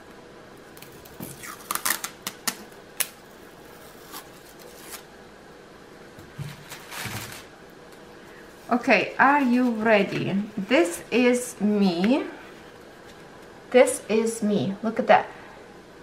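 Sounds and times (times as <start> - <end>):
adhesive tape peeling: 0.8 - 3.2
paper rustling: 6.4 - 7.5, 9.2 - 10.7.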